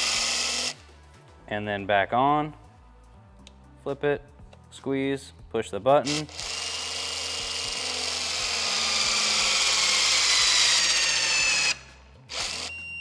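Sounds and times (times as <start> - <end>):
electric torque gun whirring: 0.0 - 0.8, 6.1 - 12.8
short beep: 12.7 - 13.0.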